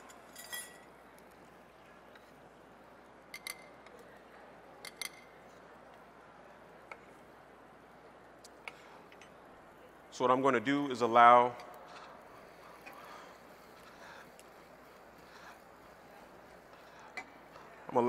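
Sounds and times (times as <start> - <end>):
glass bowls clinking: 0.0 - 0.9
faint room hiss: 0.0 - 18.0.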